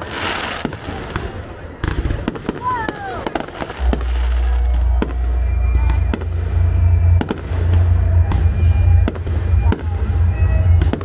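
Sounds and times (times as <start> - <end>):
deep rumble: 3.7 - 11.0.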